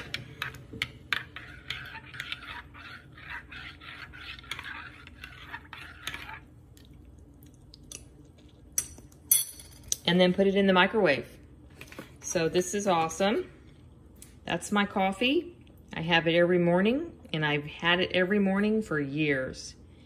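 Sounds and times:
spoon stirring coffee in mug: 0:00.0 - 0:07.1.

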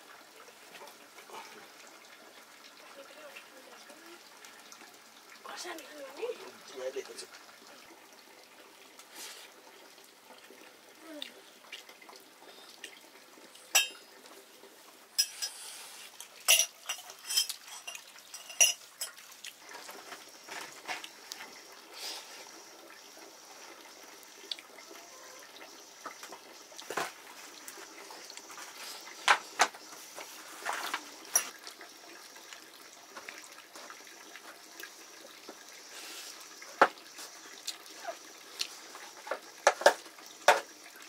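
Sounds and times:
metal pots and utensils clinking: 0:13.7 - 0:14.1, 0:15.2 - 0:15.6, 0:16.2 - 0:19.2, 0:30.6 - 0:31.7.

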